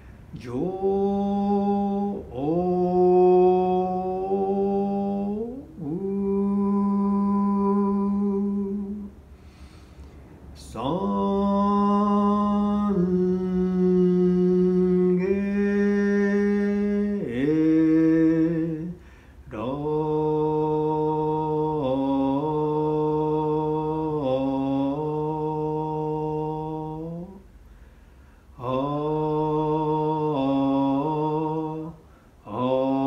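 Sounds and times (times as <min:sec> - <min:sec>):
man chanting solo: 0:00.3 - 0:09.1, 0:10.6 - 0:27.4.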